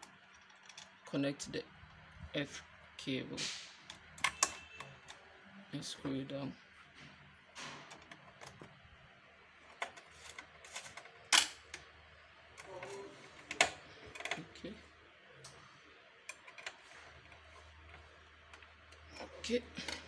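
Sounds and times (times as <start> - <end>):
clicks and knocks of handling: 9.7 - 11.9, 12.5 - 14.6, 16.2 - 20.0.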